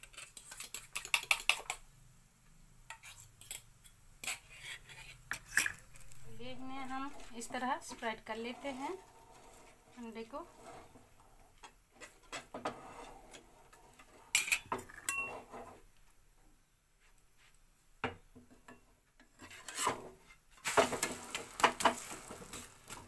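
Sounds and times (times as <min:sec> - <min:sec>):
metal spatula scraping griddle: 0:02.9 - 0:15.8, 0:19.3 - 0:23.0.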